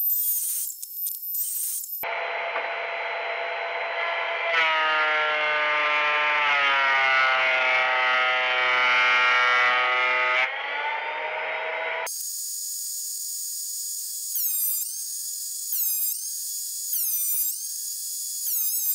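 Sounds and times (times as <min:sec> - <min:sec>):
planer cutting wooden board: 0:01.6 - 0:12.1.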